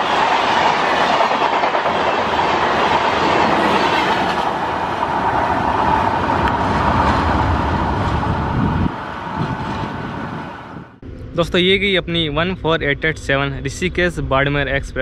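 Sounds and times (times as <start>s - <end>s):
train wheels rushing on rails: 0.0s - 11.0s.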